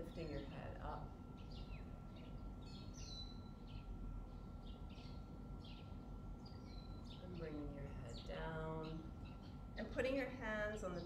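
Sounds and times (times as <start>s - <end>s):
birds chirping: 0.0s - 11.0s
low outdoor background rumble: 0.0s - 11.0s.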